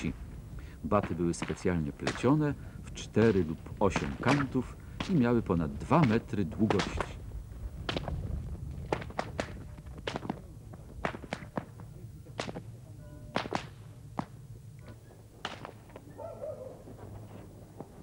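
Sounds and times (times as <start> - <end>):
whips cracking: 11.0 - 11.7, 12.4 - 12.6, 13.4 - 14.3, 15.4 - 15.8.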